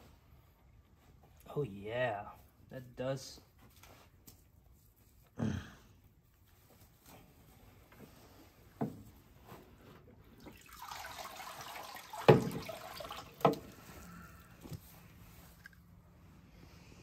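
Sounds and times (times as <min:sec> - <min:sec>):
water pouring into a bucket: 0:10.4 - 0:14.1.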